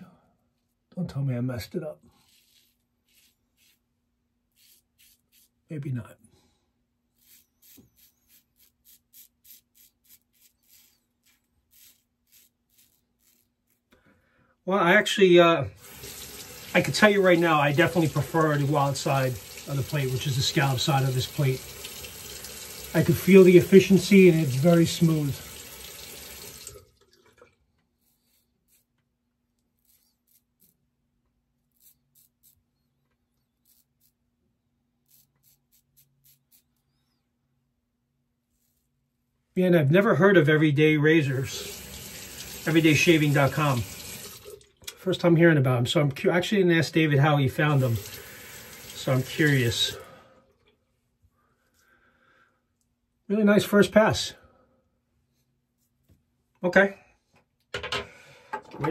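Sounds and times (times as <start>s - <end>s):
razor cutting stubble: 2.2s - 3.9s, 4.5s - 5.6s, 7.1s - 13.9s, 28.0s - 29.0s, 29.7s - 30.8s, 31.7s - 32.6s, 33.5s - 34.2s, 35.0s - 36.7s.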